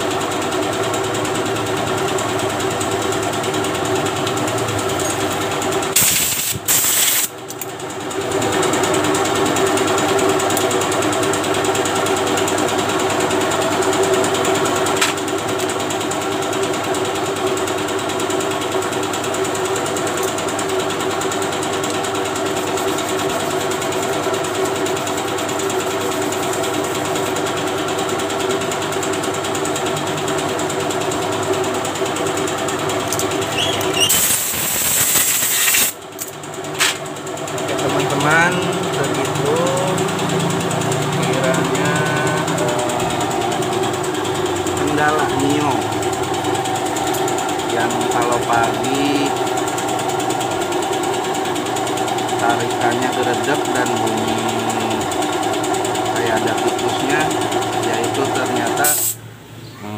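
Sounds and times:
machine motor droning: 35.8s - 58.9s.

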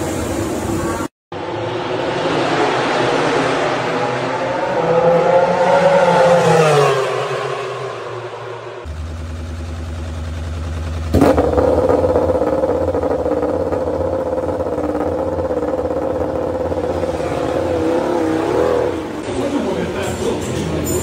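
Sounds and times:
race bike engine idling: 8.9s - 18.2s.

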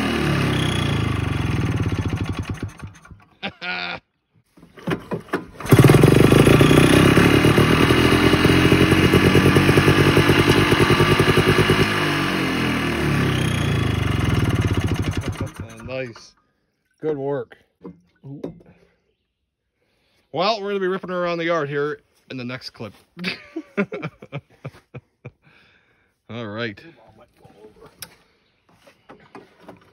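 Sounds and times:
snowmobile engine sputtering and idling: 0.0s - 3.4s, 5.2s - 16.3s.

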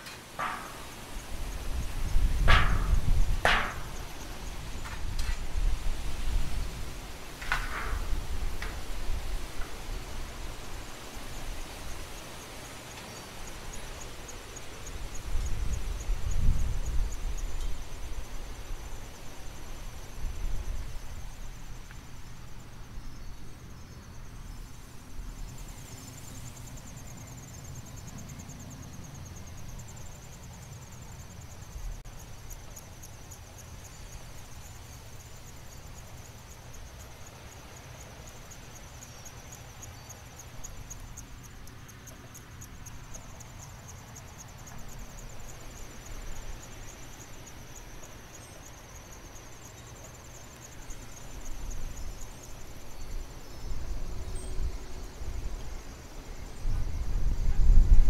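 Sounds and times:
wind rumbling: 0.0s - 28.4s
insects chirping: 0.0s - 58.0s.

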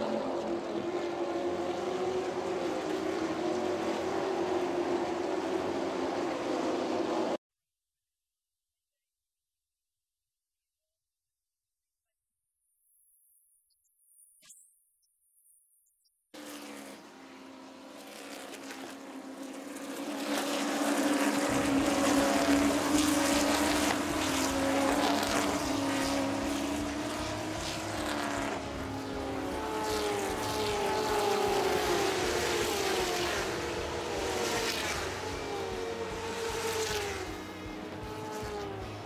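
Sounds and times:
racing car engines at full throttle: 0.0s - 7.4s, 16.4s - 39.0s.

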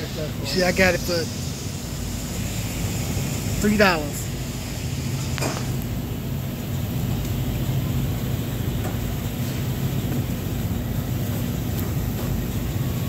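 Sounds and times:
machinery humming and rumbling: 0.0s - 13.0s.

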